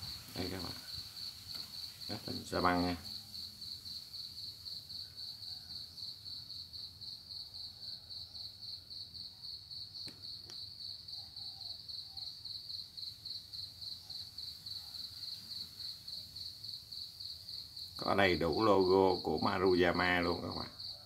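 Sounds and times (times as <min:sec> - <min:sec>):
insect chirping: 0:00.0 - 0:21.0.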